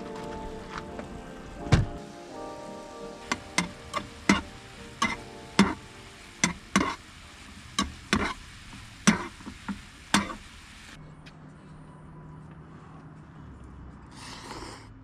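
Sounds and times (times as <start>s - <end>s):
utensil knocking against pot: 3.3s - 5.8s.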